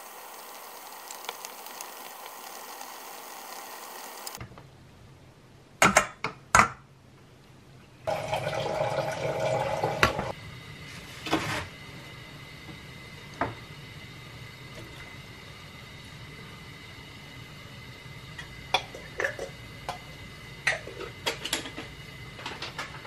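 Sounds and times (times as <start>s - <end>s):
water pouring into a pot: 0.0s - 4.4s, 8.1s - 10.4s
steady low hum: 10.3s - 23.0s.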